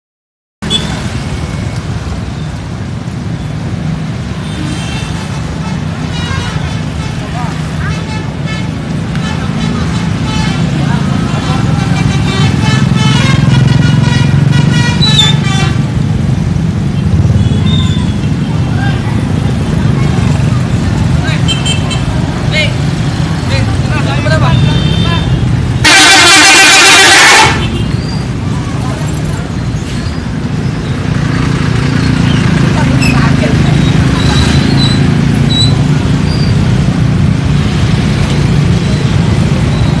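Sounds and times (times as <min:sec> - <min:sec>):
motor scooter engines rumbling: 0:00.6 - 0:40.0
musical air horn jingle: 0:25.8 - 0:27.7.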